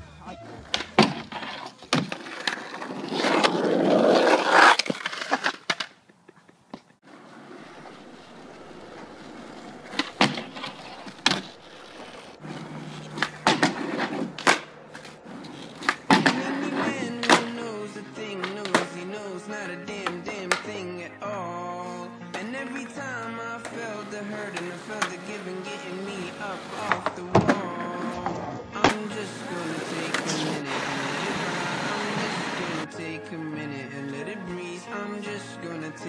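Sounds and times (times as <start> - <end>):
skateboard clacks and slaps: 0.5 - 6.0, 7.8 - 17.7, 18.3 - 19.2, 19.9 - 20.8, 22.3 - 30.7
skateboard wheels rolling on asphalt: 0.6 - 36.0.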